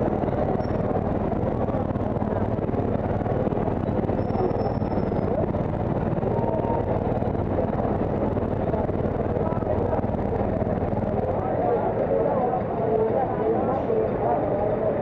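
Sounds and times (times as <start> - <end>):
motorcycle engine idling low: 0.0 - 11.4
traffic noise: 0.0 - 15.0.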